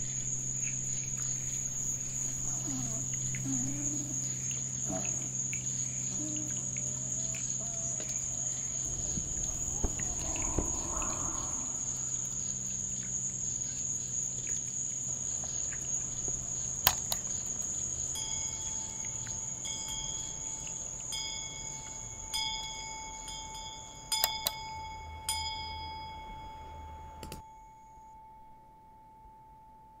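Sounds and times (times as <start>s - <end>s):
crickets trilling: 0.0s - 24.6s
low chime tone: 18.2s - 30.0s.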